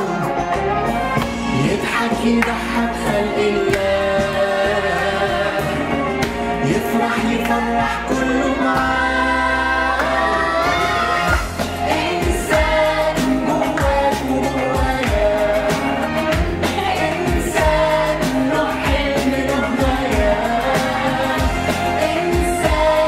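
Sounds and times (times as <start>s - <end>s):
group singing pop song: 0.0s - 23.0s
instrumental backing with beat: 0.0s - 23.0s.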